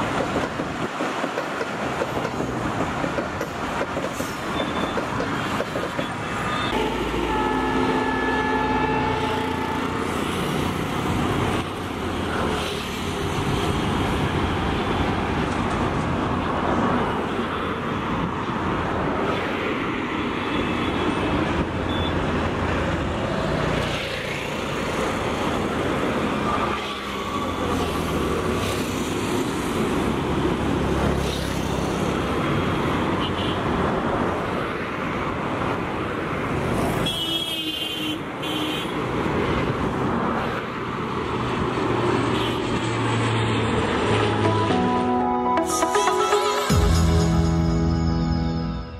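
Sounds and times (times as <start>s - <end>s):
car horn blaring: 6.5s - 10.0s.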